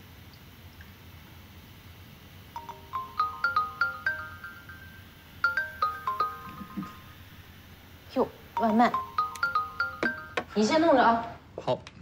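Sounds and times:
marimba phone ringtone: 0:02.6 - 0:07.6, 0:08.5 - 0:10.6.

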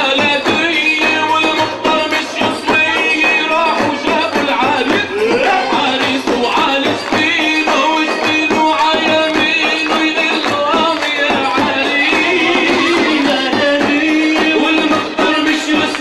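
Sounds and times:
tambourines and hand percussion: 0:00.0 - 0:16.0
wavering melody: 0:02.8 - 0:06.4, 0:11.8 - 0:14.9.

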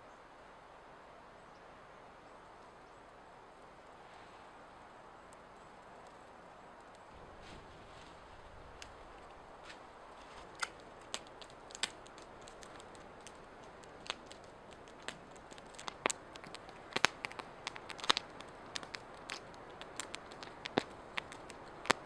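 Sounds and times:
faint steady hiss: 0:00.0 - 0:22.0
wood fire crackling: 0:04.6 - 0:22.0.

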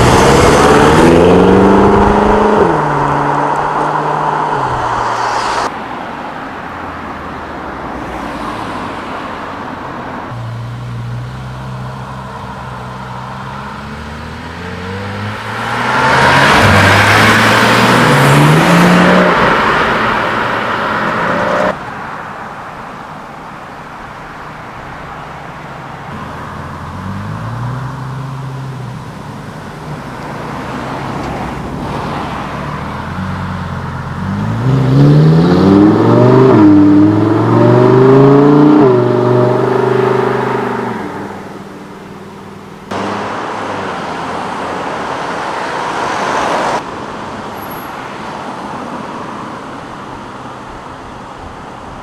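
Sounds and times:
engine revving: 0:00.0 - 0:05.7, 0:13.1 - 0:20.4, 0:34.1 - 0:41.4, 0:42.9 - 0:46.8
sports car accelerating hard: 0:00.0 - 0:05.7, 0:11.3 - 0:21.8, 0:29.9 - 0:46.9
car engines pulling away: 0:00.0 - 0:22.1, 0:24.2 - 0:52.0.

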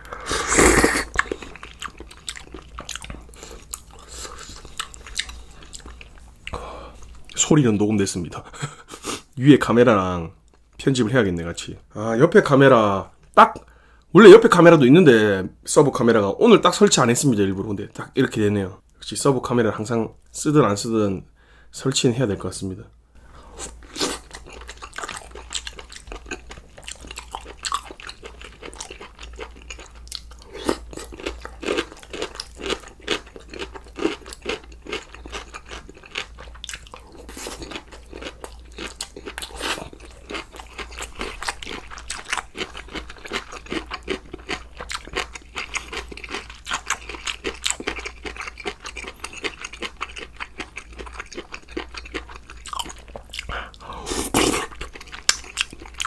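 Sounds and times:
chewing and crunching: 0:00.8 - 0:07.4, 0:23.6 - 0:56.0.

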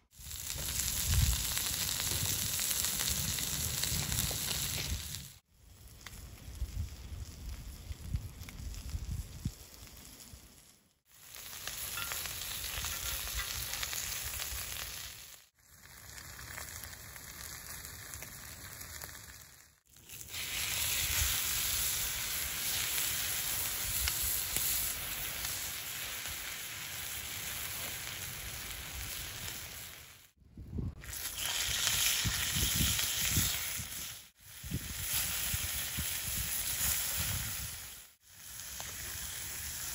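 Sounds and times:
peppers sizzling on a grill pan: 0:00.1 - 0:05.4, 0:11.1 - 0:30.3, 0:31.0 - 0:39.9.

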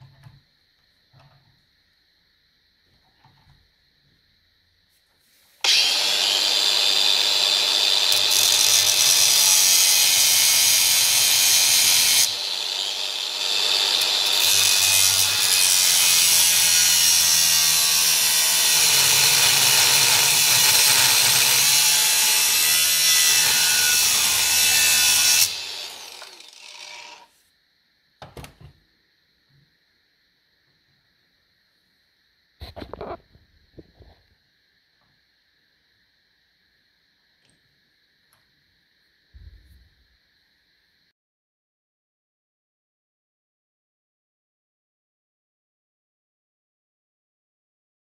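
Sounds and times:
angle grinder cutting steel: 0:05.6 - 0:27.3.

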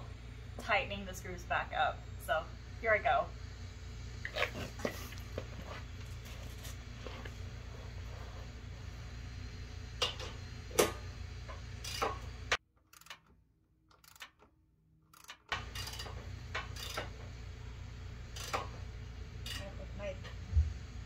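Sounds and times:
socket ratchet clicking: 0:12.9 - 0:13.3, 0:13.9 - 0:14.5, 0:15.1 - 0:16.1
steady low rumble: 0:18.9 - 0:21.0.

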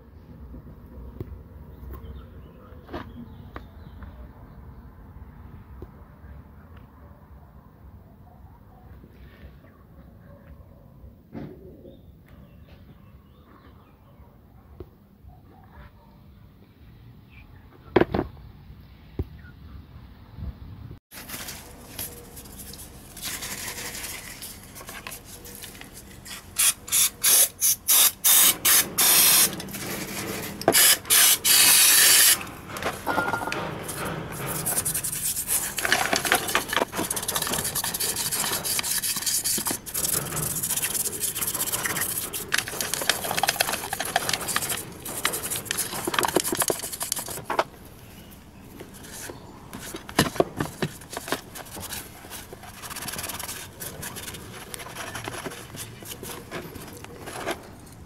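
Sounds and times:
toothbrush scrubbing metal: 0:33.8 - 0:47.5
rag wiping: 0:33.8 - 0:47.6, 0:48.9 - 0:57.7.

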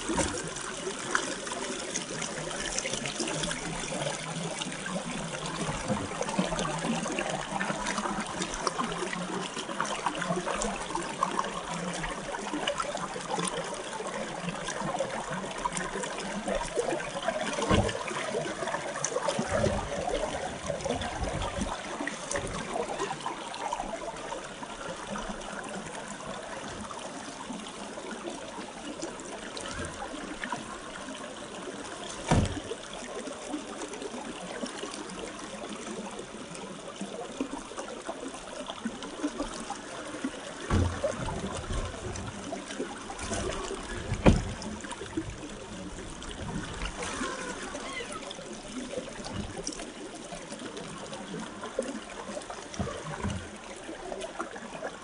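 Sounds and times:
river water trickling over rocks: 0:00.0 - 0:55.0
low thumps: 0:40.7 - 0:42.5.

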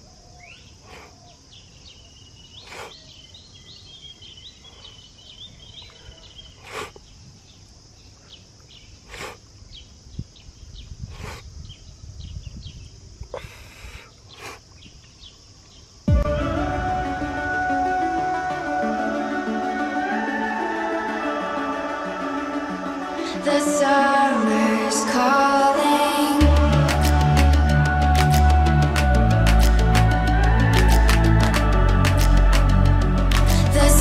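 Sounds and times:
low rumble: 0:16.1 - 0:19.0.

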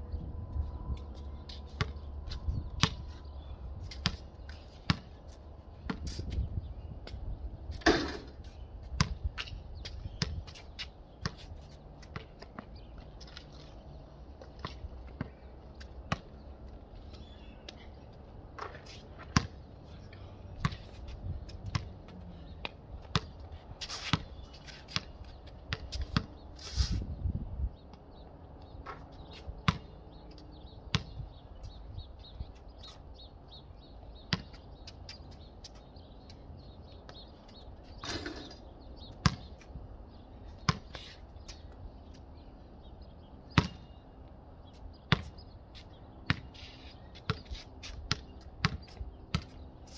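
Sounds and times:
basketball bouncing on concrete: 0:02.7 - 0:03.1, 0:03.9 - 0:04.2, 0:04.9 - 0:05.1, 0:07.8 - 0:10.6, 0:18.6 - 0:19.6, 0:21.5 - 0:23.4, 0:25.7 - 0:26.4, 0:29.6 - 0:30.0, 0:30.9 - 0:31.2, 0:34.3 - 0:35.8, 0:39.2 - 0:39.5, 0:40.6 - 0:40.9, 0:43.5 - 0:44.0, 0:45.1 - 0:45.4, 0:46.2 - 0:46.5, 0:48.1 - 0:49.6.

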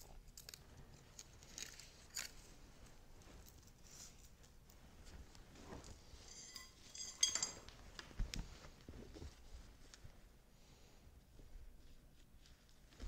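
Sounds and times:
chain links clinking: 0:06.2 - 0:07.7.

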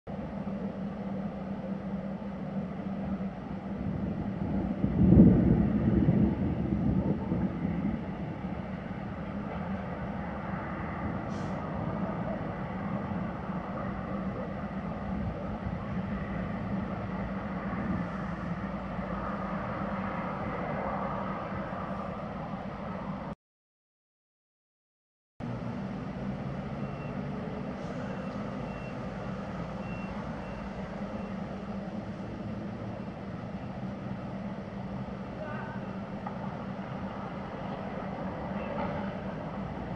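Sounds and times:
thunder rumbling: 0:03.8 - 0:08.8
distant vehicle engine running: 0:25.4 - 0:39.9
reversing alarm beeps: 0:26.7 - 0:27.3, 0:28.0 - 0:31.7.

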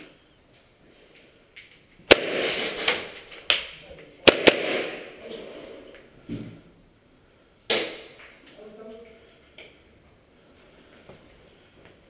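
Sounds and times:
airsoft gun shots echoing: 0:02.1 - 0:03.1, 0:04.2 - 0:05.2, 0:07.7 - 0:08.2.

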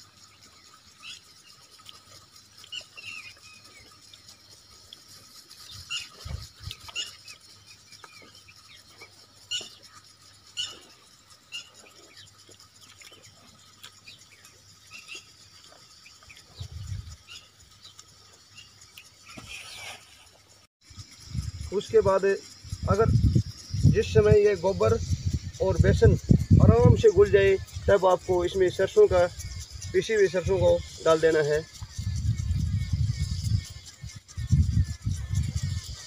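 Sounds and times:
small squeaks: 0:00.9 - 0:20.7.

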